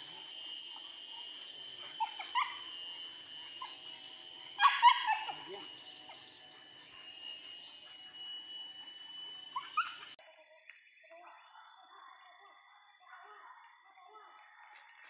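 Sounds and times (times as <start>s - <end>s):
dogs whining: 0.0s - 8.3s, 9.4s - 10.2s
forest insects droning: 0.0s - 15.0s
dog yelps: 1.8s - 3.9s, 4.5s - 6.4s, 9.6s - 10.2s.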